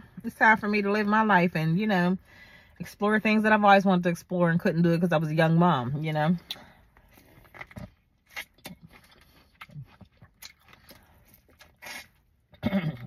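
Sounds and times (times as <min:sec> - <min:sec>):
person chewing corn on the cob: 0:07.1 - 0:13.0.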